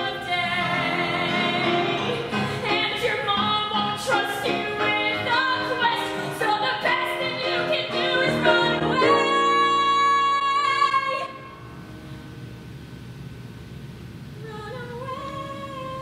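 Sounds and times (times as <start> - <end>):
young woman singing: 0.0 - 11.4, 14.4 - 16.0
keyboard accompaniment: 0.0 - 12.8.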